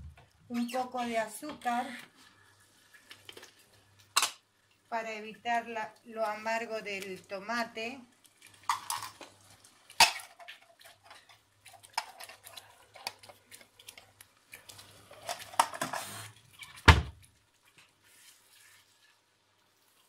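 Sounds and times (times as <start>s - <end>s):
wooden spoon stirring sauce in pot: 1.2s - 4.0s, 8.2s - 20.0s.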